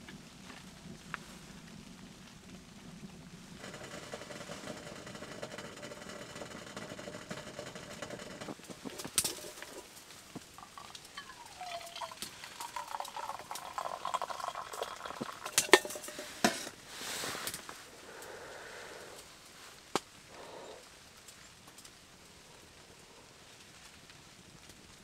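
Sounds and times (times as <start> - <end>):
tea trickling into cup: 3.6 - 16.8
metal clinks of pot and cup: 4.8 - 9.9, 10.6 - 16.7.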